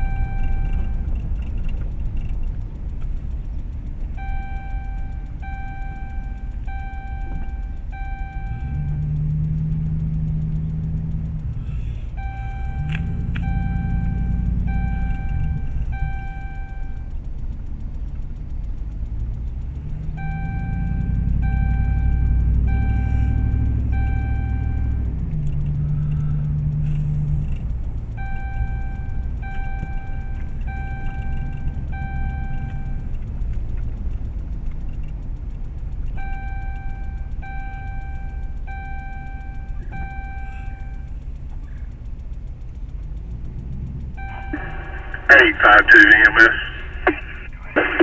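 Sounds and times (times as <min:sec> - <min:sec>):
electronic beeps: 0:00.0 - 0:01.1, 0:04.1 - 0:09.2, 0:12.1 - 0:17.2, 0:20.1 - 0:25.1, 0:28.2 - 0:33.1, 0:36.2 - 0:41.2, 0:44.2 - 0:48.0
vehicle engine and road noise: 0:00.0 - 0:48.0.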